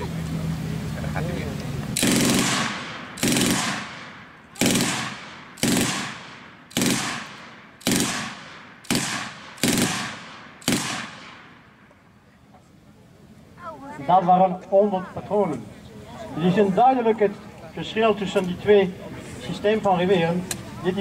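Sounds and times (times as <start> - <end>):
machine gun bursts echoing: 2.0 - 11.5.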